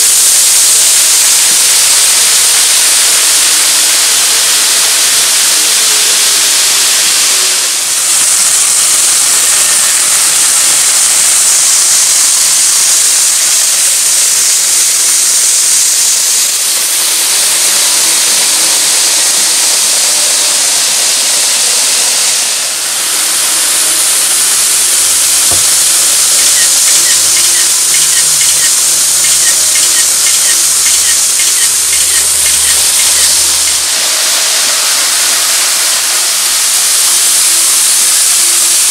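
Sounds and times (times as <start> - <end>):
model train hissing on track: 0.0 - 38.9
faint rapid clicking: 25.6 - 33.8.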